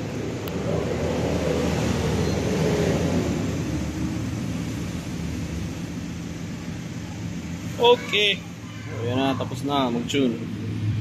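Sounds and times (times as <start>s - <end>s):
passing vehicle engine: 0.0s - 11.0s.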